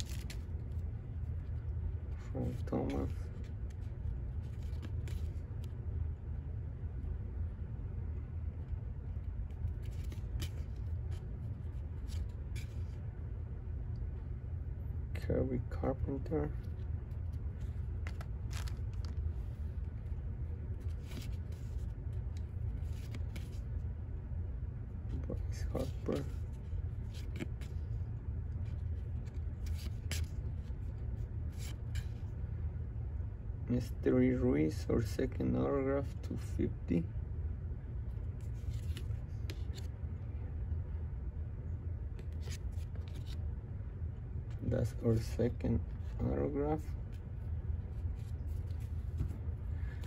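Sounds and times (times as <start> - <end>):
trading cards rustling: 0.0 - 5.8, 8.7 - 13.0, 15.7 - 23.8, 25.1 - 32.2, 38.2 - 40.0, 42.1 - 43.6, 44.4 - 50.0
low steady hum: 0.0 - 50.0
steady low rumble: 0.0 - 50.0.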